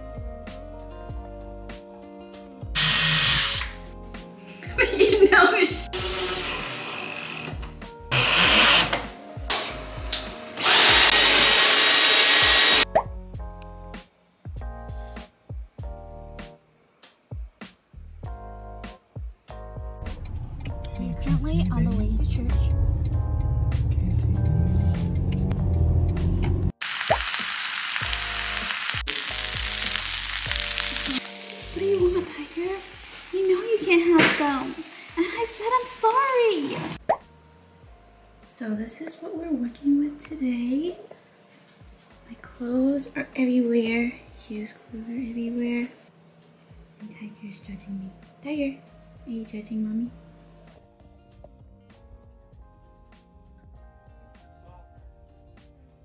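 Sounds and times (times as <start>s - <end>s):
background music: 0.0s - 56.0s
cordless drill running: 2.8s - 3.7s, 5.9s - 9.0s, 10.6s - 12.8s
stick vacuum running: 5.9s - 9.7s, 10.6s - 12.8s
pork sizzling on grill pan: 26.8s - 37.0s.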